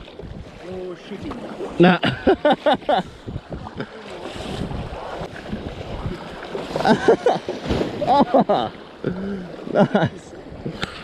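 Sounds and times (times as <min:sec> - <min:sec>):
wind buffeting microphone: 0:00.0 - 0:01.4, 0:02.9 - 0:08.3
choppy water splashing: 0:00.0 - 0:11.0.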